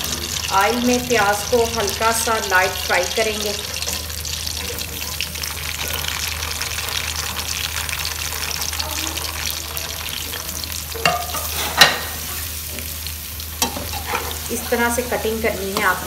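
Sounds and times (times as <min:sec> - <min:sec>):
onions sizzling in hot oil: 0:00.0 - 0:16.0
metal spoon knocking pot: 0:11.0 - 0:12.0.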